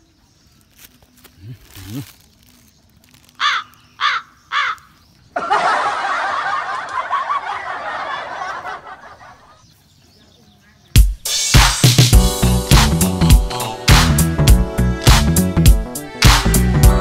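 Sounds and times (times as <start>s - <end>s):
loud caw-like calls: 3.4s - 5.0s.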